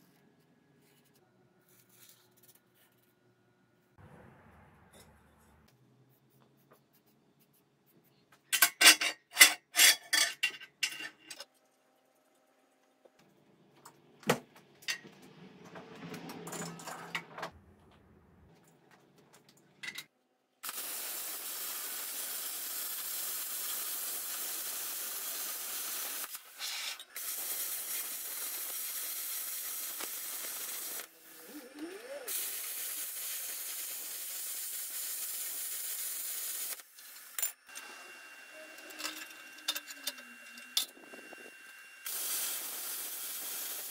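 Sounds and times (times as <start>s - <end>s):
metal clattering on steel table: 8.5s - 11.4s
plasma cutter hissing: 20.6s - 37.3s, 42.1s - 43.9s.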